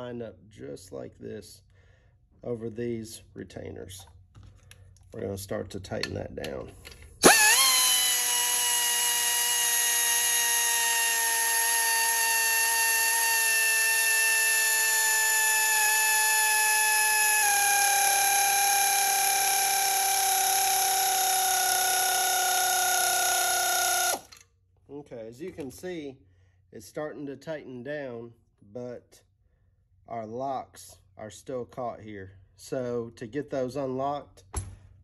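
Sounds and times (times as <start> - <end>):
pneumatic air ratchet whining: 6.8 - 24.5.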